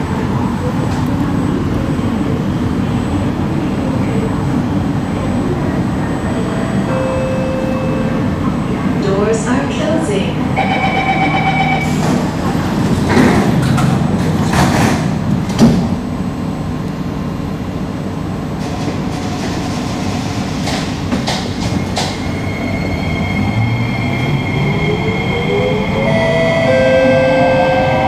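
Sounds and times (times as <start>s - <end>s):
train doors sliding shut: 11.8s - 16.1s, 18.6s - 22.4s.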